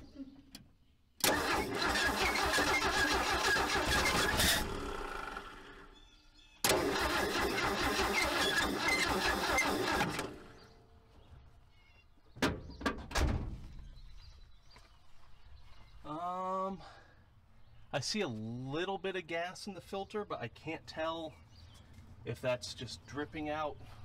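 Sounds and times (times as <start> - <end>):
engine cranking and sputtering: 1.2 - 6.0, 6.6 - 10.7.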